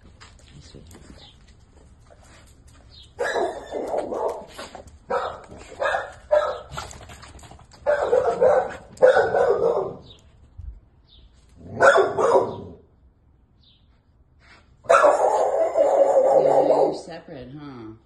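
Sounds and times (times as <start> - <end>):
dog barking: 3.2 - 6.7, 7.8 - 10.1, 11.6 - 12.8, 14.8 - 17.1.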